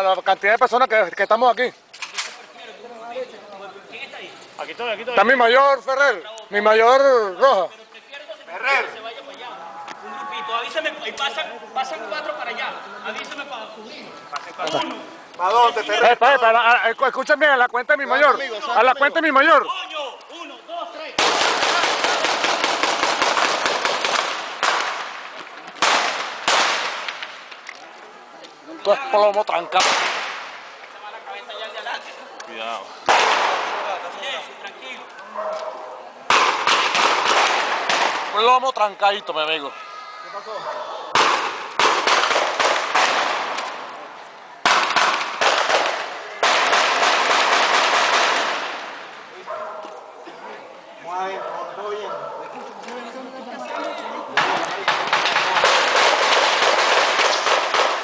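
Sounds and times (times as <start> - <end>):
rapid gunfire: 21.2 - 25.1, 25.8 - 27.1, 36.3 - 38.3, 41.2 - 43.6, 44.6 - 48.8, 54.4 - 58.0.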